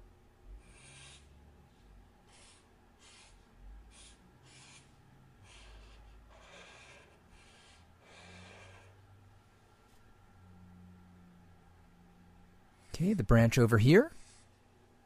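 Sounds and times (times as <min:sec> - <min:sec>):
marker swishing on paper: 0:02.3 - 0:08.9.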